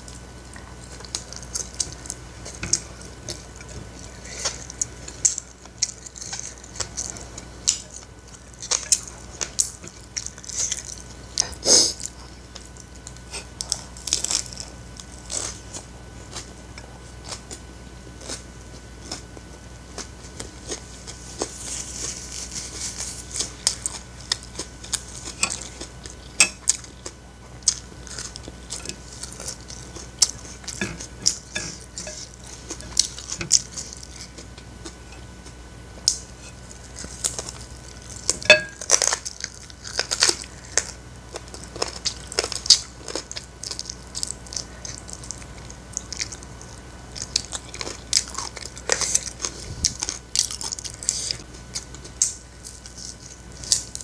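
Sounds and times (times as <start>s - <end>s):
person chewing: 0.0s - 54.0s
cutlery clinking on plates: 38.4s - 38.8s.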